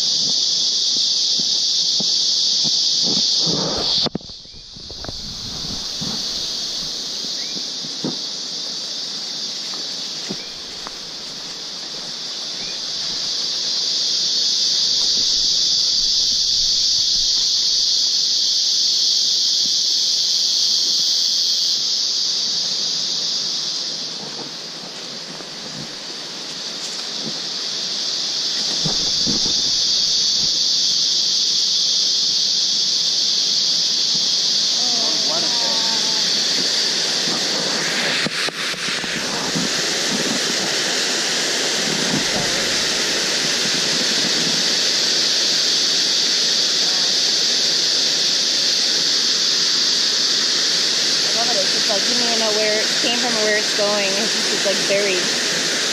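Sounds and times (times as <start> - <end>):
insect chorus shrilling: 0.0 - 55.9
soft footsteps on trail: 9.6 - 13.4.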